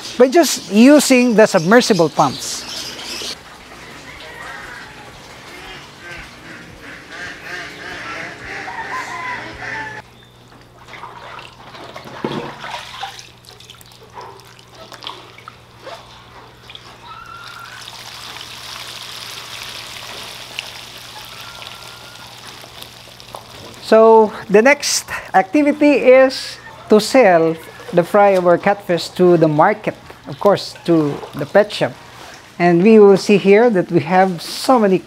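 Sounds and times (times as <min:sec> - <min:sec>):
bird calls: 0:00.0 - 0:10.6, 0:20.5 - 0:22.6
steady low hum: 0:00.7 - 0:17.2
water splashing and trickling: 0:02.5 - 0:06.8, 0:10.6 - 0:24.5.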